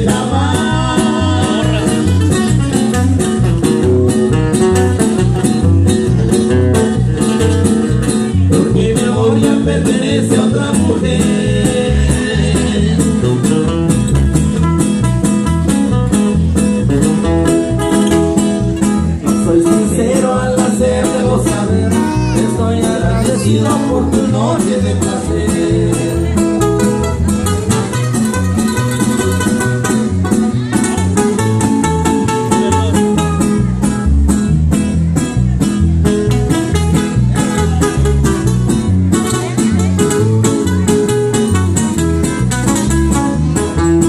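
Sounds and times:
person singing: 0.0 - 2.6, 8.5 - 13.5, 19.4 - 26.5
acoustic guitars: 0.0 - 44.0
drums with steady beat: 0.0 - 44.0
electric bass: 0.0 - 44.0.

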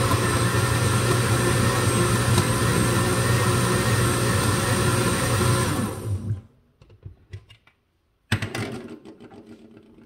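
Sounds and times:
blender running: 0.0 - 6.5.

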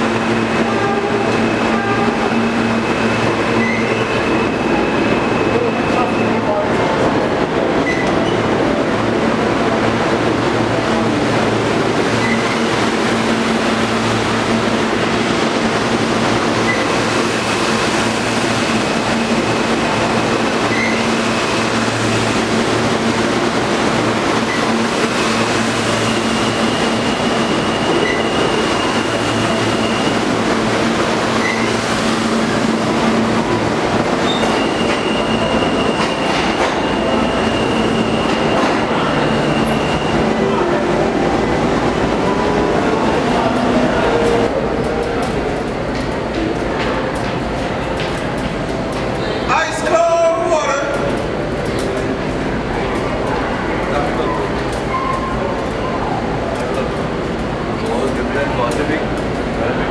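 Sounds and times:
train wheels rumbling on rail: 0.0 - 59.9
high wheel squeal: 0.5 - 6.6, 12.2 - 12.7, 19.0 - 21.6, 25.5 - 30.4, 31.3 - 31.8, 33.4 - 40.4.

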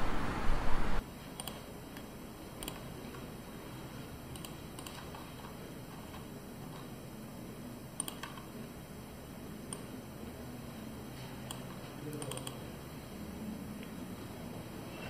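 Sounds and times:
outdoor traffic noise: 0.0 - 1.0
computer keyboard typing: 1.4 - 1.6, 2.6 - 2.9, 4.3 - 6.8, 8.0 - 8.5, 11.4 - 12.7.

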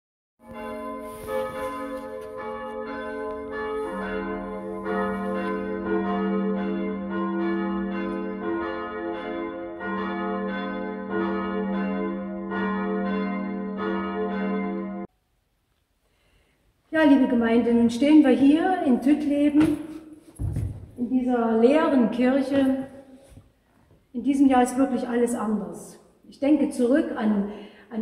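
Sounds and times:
church bells ringing: 0.4 - 15.1
lower bell: 0.4 - 15.1.

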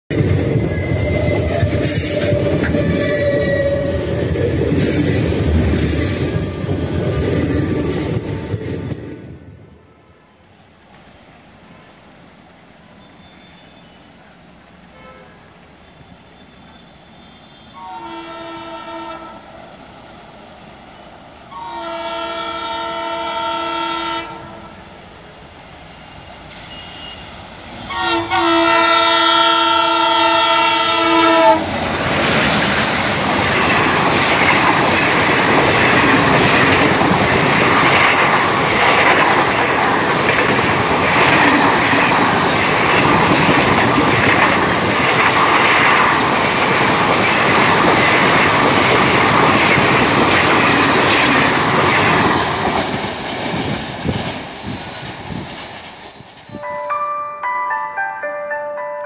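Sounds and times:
locomotive horn blasts: 14.8 - 19.5, 21.5 - 24.8, 26.7 - 31.7
train wheels clattering over rail joints: 31.7 - 56.6.

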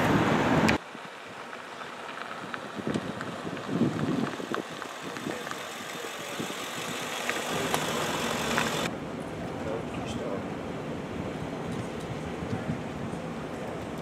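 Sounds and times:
engine idling: 1.4 - 8.9.

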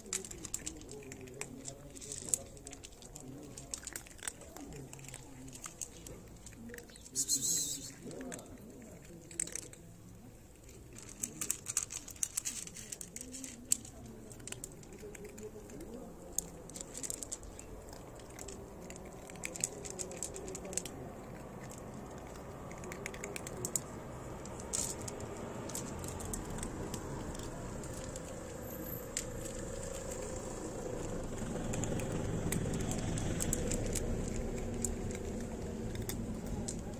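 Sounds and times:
cats crunching dry kibble: 0.0 - 36.9.

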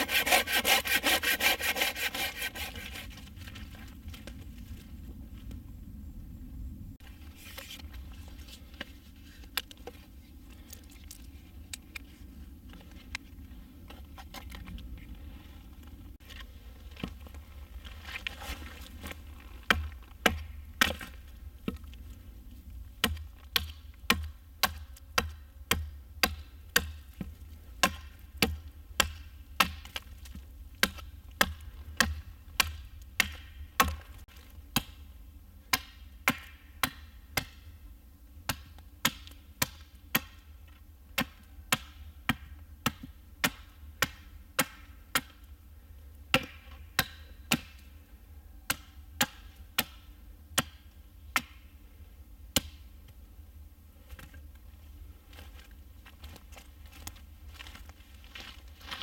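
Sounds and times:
hatchet chopping wood: 19.7 - 21.8, 23.0 - 30.1, 30.8 - 35.1, 35.7 - 37.7, 38.4 - 45.4, 46.3 - 47.9, 48.6 - 51.7, 52.5 - 52.8.

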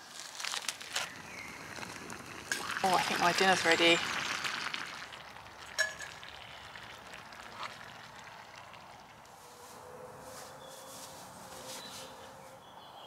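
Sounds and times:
metallic clink of cookware: 5.8 - 6.1.

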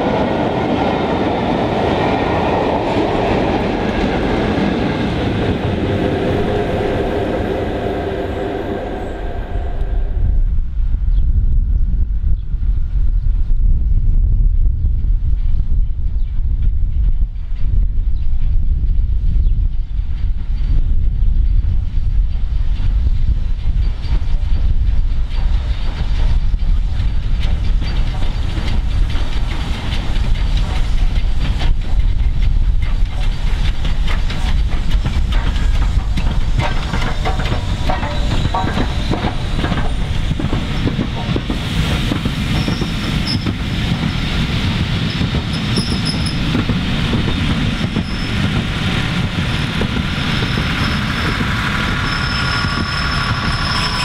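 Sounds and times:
train rumbling: 0.0 - 54.0
wheels clicking over rail joints: 24.1 - 54.0
high squeal of brakes: 42.5 - 43.6, 45.2 - 46.5, 47.9 - 48.5, 50.2 - 54.0.

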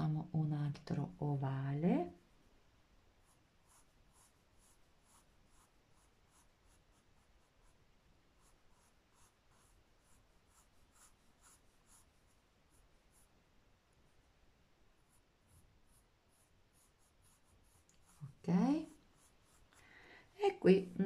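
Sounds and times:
pencil scratching on paper: 3.2 - 13.4, 15.0 - 19.8.

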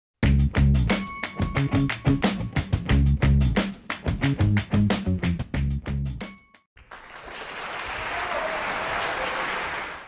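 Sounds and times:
music with beats and bass: 0.2 - 6.6.

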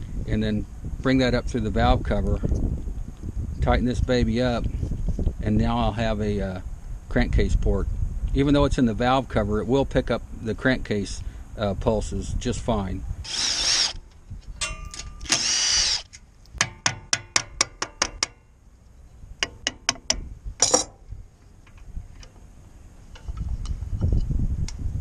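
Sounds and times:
tool whirring: 13.2 - 14.2, 14.9 - 16.2.

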